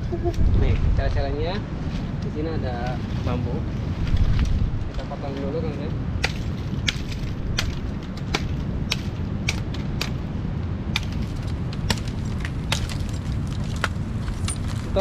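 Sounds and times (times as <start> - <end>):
low rumble: 0.0 - 15.0
machete chopping bamboo: 6.2 - 10.2, 10.9 - 13.2.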